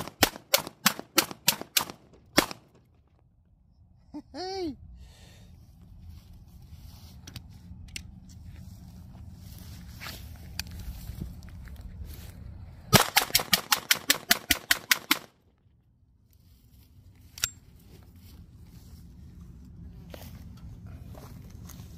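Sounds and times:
pistol gunshots: 0.0s - 2.8s, 12.9s - 15.3s
quieter sharp gunshot: 0.0s - 2.8s, 12.9s - 15.3s.

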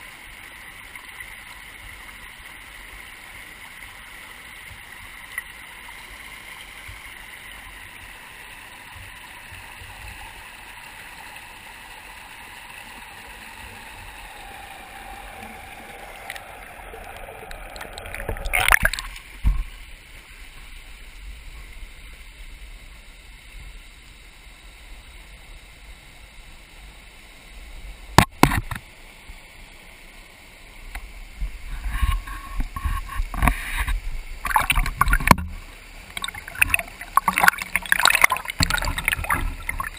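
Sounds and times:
river water gurgling and lapping: 0.0s - 21.5s, 31.3s - 39.9s
loud water splashing: 13.0s - 19.4s, 34.4s - 39.9s.

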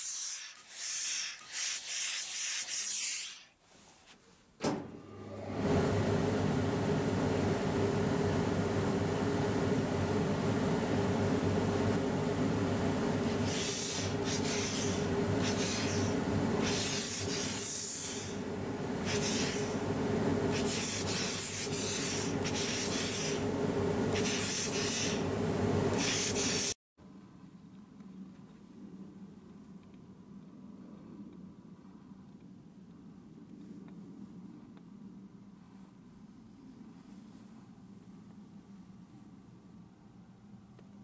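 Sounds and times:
steam iron hissing bursts: 0.0s - 3.5s, 13.3s - 18.4s, 19.0s - 19.8s, 20.5s - 23.5s, 24.1s - 25.3s, 26.0s - 26.8s
steam iron hum: 0.0s - 26.8s.

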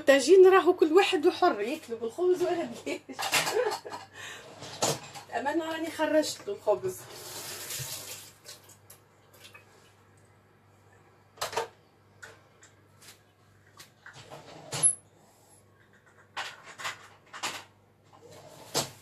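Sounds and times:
kitchen knocks and clunks: 3.1s - 4.1s
low steady hum: 8.4s - 16.3s.

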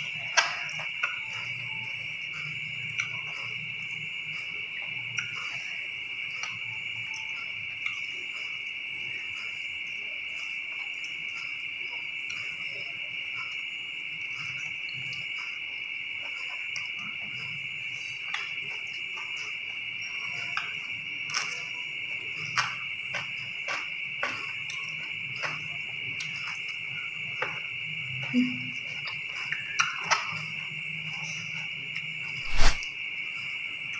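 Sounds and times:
high-pitched insect trill: 0.0s - 33.9s
brief low hum: 32.4s - 32.9s.

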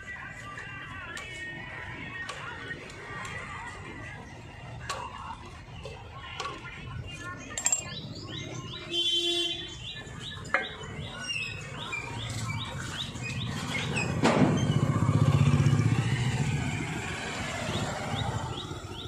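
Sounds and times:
small birds chirping: 7.1s - 14.2s, 17.6s - 19.0s
vehicle engine rumble passing: 13.7s - 18.9s.

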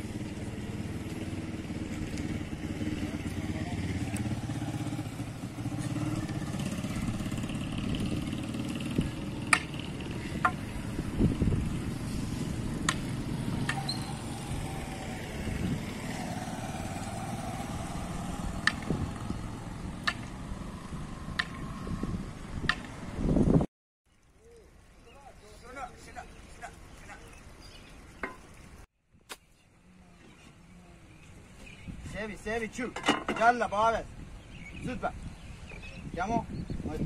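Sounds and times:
small motorcycle engine passing: 0.0s - 23.7s
street noise: 0.0s - 23.7s.

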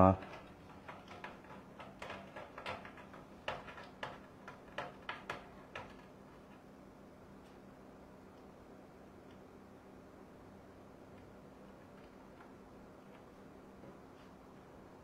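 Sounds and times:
steady low hum: 0.0s - 15.0s
faint clicks and taps: 0.2s - 6.6s.

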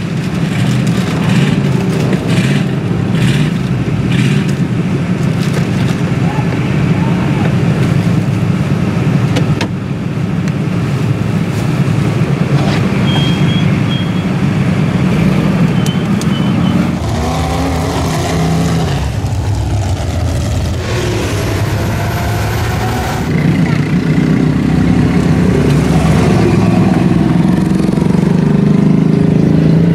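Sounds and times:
off-road vehicle engines rumbling: 0.0s - 29.9s
short high squeaks: 13.0s - 14.4s.

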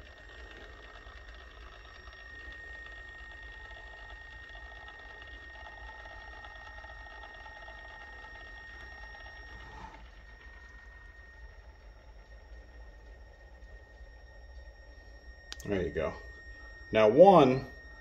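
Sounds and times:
small electric motor running: 0.0s - 18.0s.

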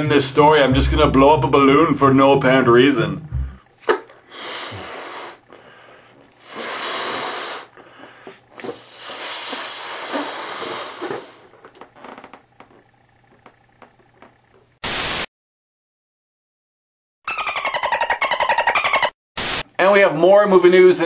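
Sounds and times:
breath blowing into balloon: 4.3s - 5.4s, 6.4s - 7.8s, 8.6s - 11.4s.

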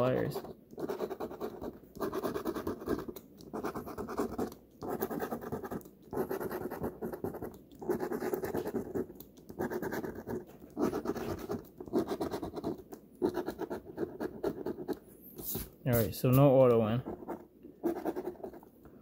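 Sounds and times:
lottery ticket being scratched: 9.6s - 18.6s.

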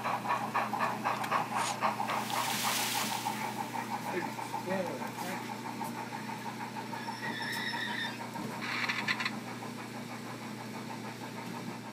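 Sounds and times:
model locomotive pulsing hum: 0.0s - 11.9s.

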